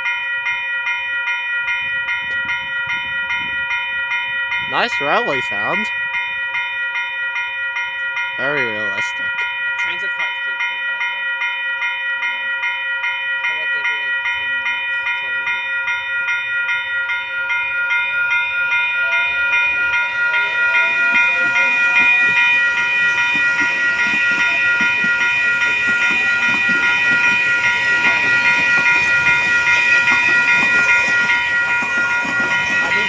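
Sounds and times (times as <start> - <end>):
level crossing warning bells: 0.0 - 33.0
train wheels on rails: 13.6 - 33.0.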